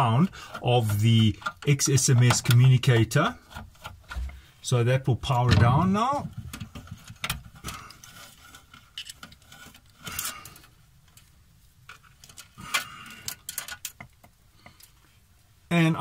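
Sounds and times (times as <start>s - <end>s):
hands handling wiring: 0.0s - 4.6s, 5.3s - 15.2s
scraping handling noises: 5.2s - 15.3s.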